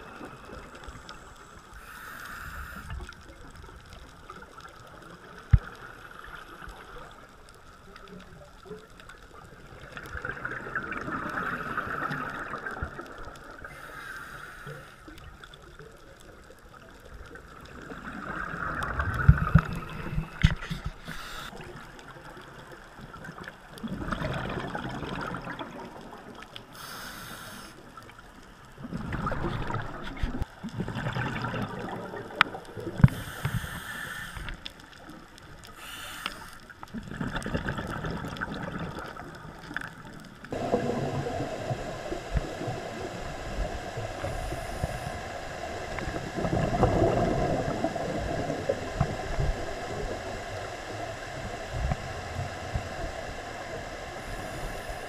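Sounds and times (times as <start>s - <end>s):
regulator inhalation hiss: 1.6s - 3.1s, 13.6s - 15.1s, 19.8s - 21.6s, 26.7s - 27.8s, 33.0s - 34.6s, 35.7s - 36.7s, 40.7s - 48.2s, 49.2s - 55.0s
bubbles gurgling underwater: 8.5s - 13.7s, 17.4s - 20.5s, 22.6s - 26.4s, 28.8s - 33.0s, 36.9s - 45.1s, 45.8s - 53.2s.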